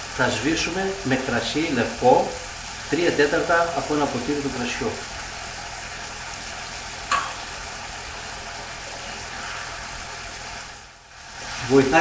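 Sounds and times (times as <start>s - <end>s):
meat sizzling in a frying pan: 0.0s - 12.0s.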